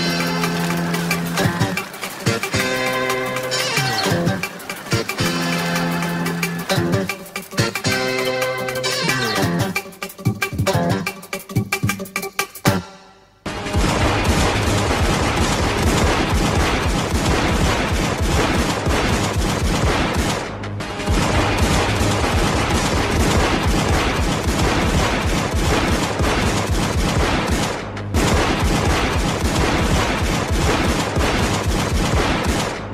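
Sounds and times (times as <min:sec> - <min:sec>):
rapid pistol gunfire: 0:00.0 - 0:07.1, 0:13.8 - 0:32.9.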